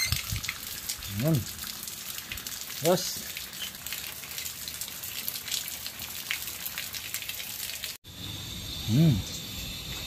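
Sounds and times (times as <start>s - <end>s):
running water splashing: 0.0s - 8.0s.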